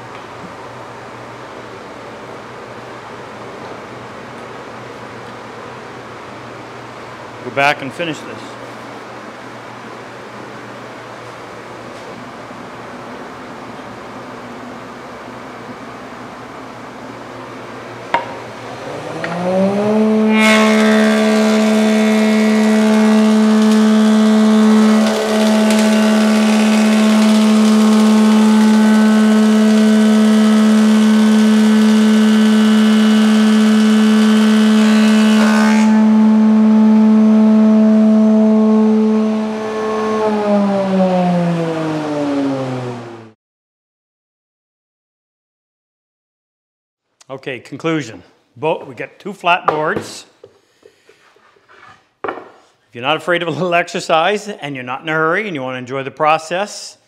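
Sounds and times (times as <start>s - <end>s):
planer cutting board: 18.2s - 37.3s
planer motor humming: 18.6s - 43.3s.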